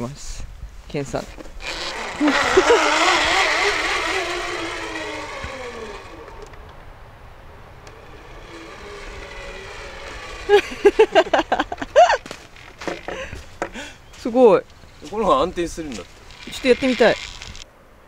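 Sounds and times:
zip line trolley whirring: 1.6s - 6.8s, 7.5s - 13.8s, 15.0s - 17.7s.

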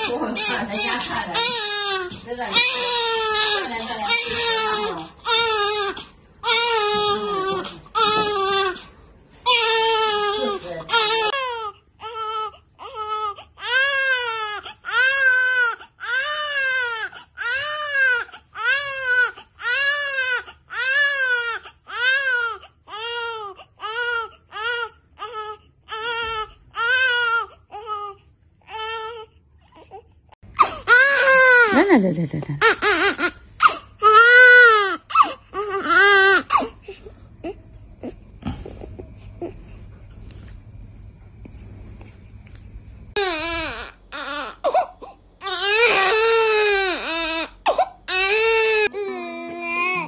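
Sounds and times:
newborn baby crying: 0.0s - 31.9s, 32.6s - 36.9s, 43.2s - 50.0s.

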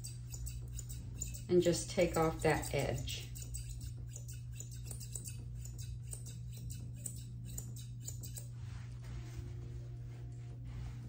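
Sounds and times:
shears snipping hair: 0.0s - 8.6s
low steady hum: 0.0s - 11.0s.

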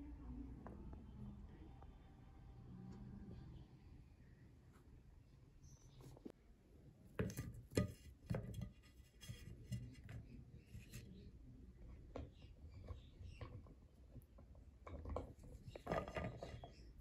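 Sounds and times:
vegetables tapping on metal tray: 7.2s - 10.0s.

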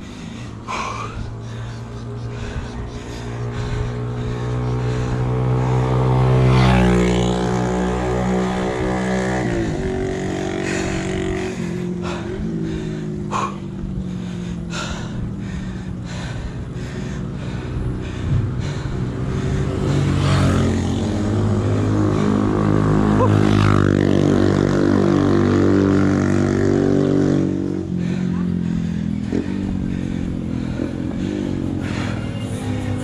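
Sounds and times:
vehicle engine running: 0.0s - 33.0s.

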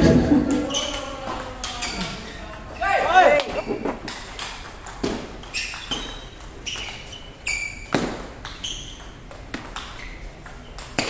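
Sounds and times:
shoes squeaking on floor: 0.0s - 11.0s
ping pong ball clicking: 3.7s - 7.0s, 8.2s - 11.0s.

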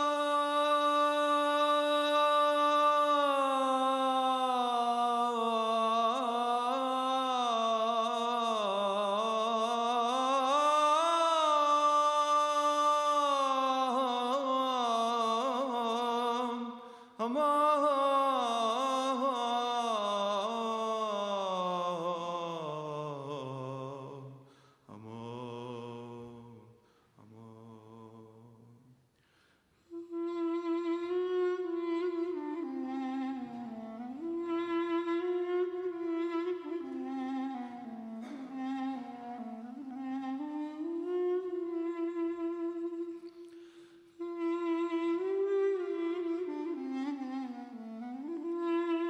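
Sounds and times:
wooden wind instrument playing hymn: 0.0s - 22.0s, 29.9s - 49.0s
man singing a hymn: 24.9s - 26.6s.

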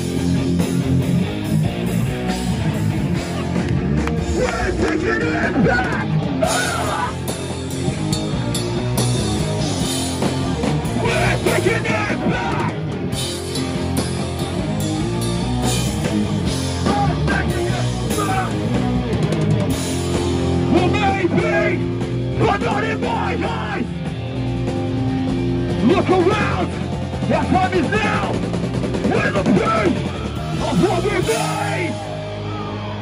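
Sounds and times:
loud guitar-driven punk music: 0.0s - 33.0s
shouted vocals: 4.2s - 7.3s, 10.8s - 13.0s, 16.7s - 18.7s, 22.4s - 24.0s, 29.1s - 33.0s.

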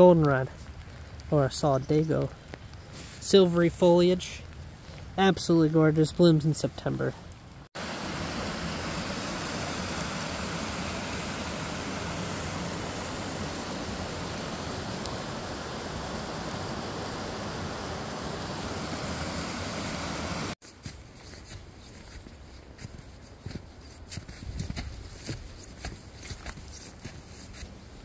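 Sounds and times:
brook rushing over stones: 0.0s - 20.6s.

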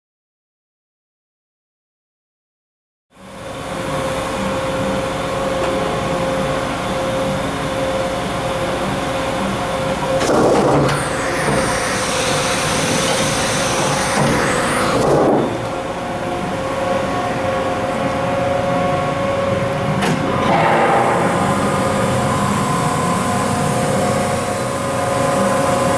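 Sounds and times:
machine humming with steady tone: 3.2s - 25.9s
pallet changer mechanical rush: 9.7s - 25.9s.

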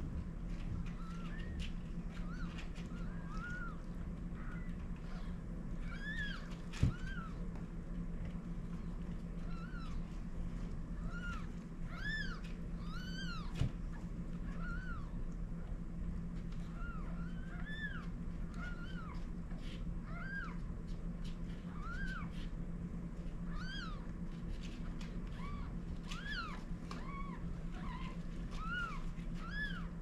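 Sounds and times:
steady low hum: 0.0s - 30.0s
kittens mewing: 11.0s - 15.2s.

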